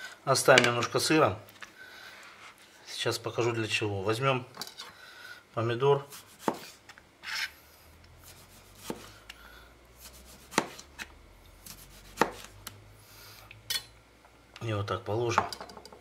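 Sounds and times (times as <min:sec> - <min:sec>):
knife hitting cutting board: 0:06.4 - 0:06.7, 0:10.5 - 0:10.8, 0:12.1 - 0:12.5.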